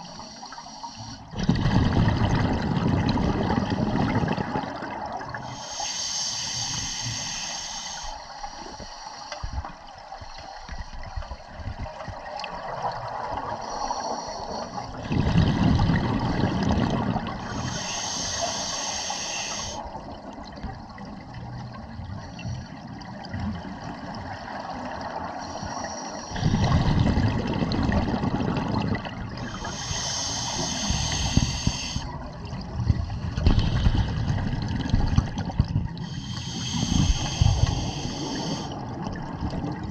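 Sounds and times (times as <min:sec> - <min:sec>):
regulator inhalation hiss: 0:00.1 - 0:01.2, 0:05.5 - 0:09.4, 0:17.5 - 0:19.8, 0:29.4 - 0:32.1, 0:36.0 - 0:38.8
exhaled bubbles rushing: 0:01.3 - 0:05.5, 0:14.9 - 0:17.7, 0:26.3 - 0:39.9.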